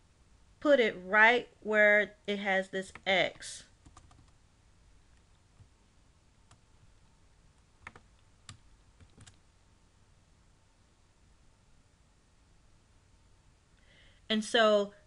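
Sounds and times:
keyboard key presses: 0:07.8 - 0:09.4.

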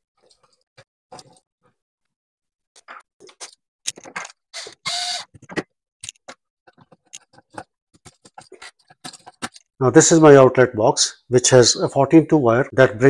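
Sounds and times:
electrical wires rattling and scraping: 0:00.2 - 0:01.5, 0:05.3 - 0:09.8.

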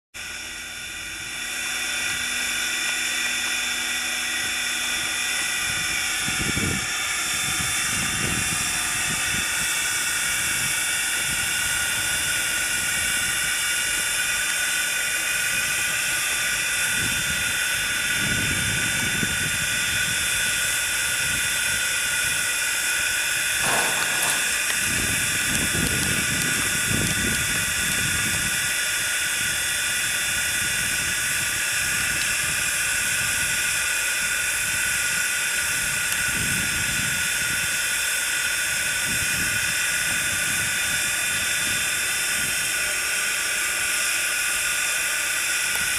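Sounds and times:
low rumbles: 0:23.6 - 0:26.0.

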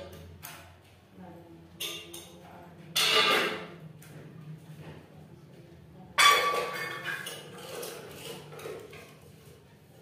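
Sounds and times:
kitchenware clinking: 0:00.0 - 0:00.8, 0:01.7 - 0:03.8, 0:06.2 - 0:09.7
kitchenware clanging: 0:01.8 - 0:03.8, 0:06.2 - 0:09.3.

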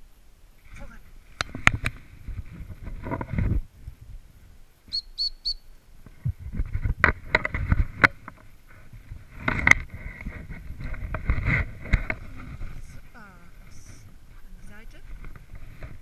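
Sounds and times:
dog whistle pips: 0:04.9 - 0:05.7.

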